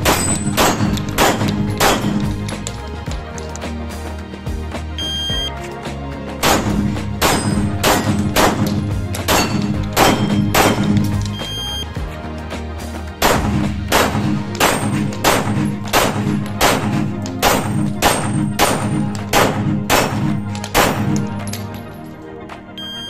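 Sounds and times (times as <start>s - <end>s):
pistol shots: 0.0s - 2.6s, 6.4s - 11.3s, 13.2s - 21.5s
background music: 0.0s - 23.0s.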